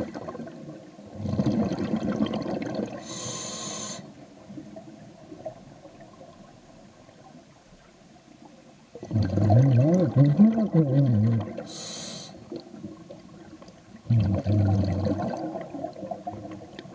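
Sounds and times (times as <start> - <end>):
bubbling exhale underwater: 0.0 - 3.2, 9.0 - 12.8, 14.0 - 16.9
regulator inhale hiss: 3.0 - 4.2, 11.7 - 12.5.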